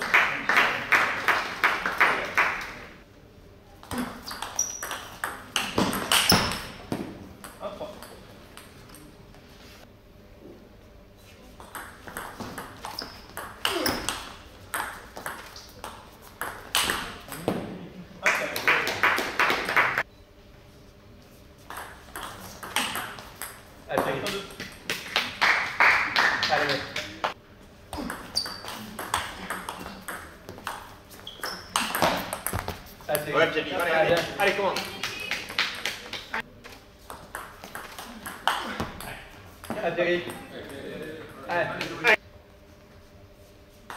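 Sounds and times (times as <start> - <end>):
ball bouncing with high ping: 3.8 - 9.1, 11.6 - 17.8, 21.7 - 25.2, 27.9 - 33.3, 37.1 - 40.4.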